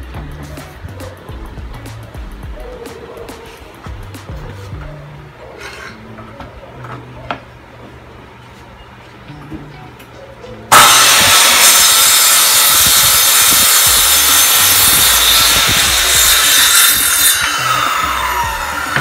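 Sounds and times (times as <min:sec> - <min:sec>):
circular saw cutting wood: 0:10.7 - 0:19.0.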